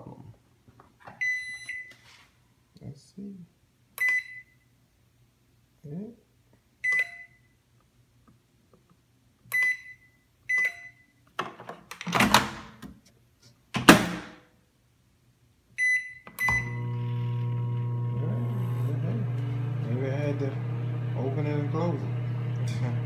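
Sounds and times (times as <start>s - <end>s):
microwave keypad beeps: 4.0s - 4.5s, 6.8s - 7.4s, 9.5s - 11.1s, 15.8s - 16.8s
microwave electrical hum: 16.4s - 23.0s.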